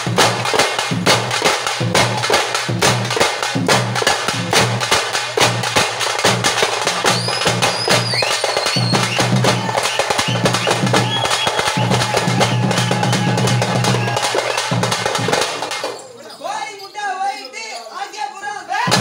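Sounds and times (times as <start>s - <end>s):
frame drums beaten fast: 0.0s - 16.0s
high whistling tone: 7.1s - 14.7s.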